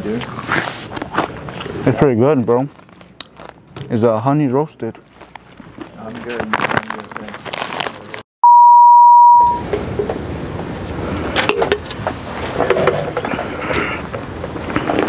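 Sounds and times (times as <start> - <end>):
scattered clicks and rustles: 5.2 - 8.2
loud steady beep tone: 8.4 - 9.6.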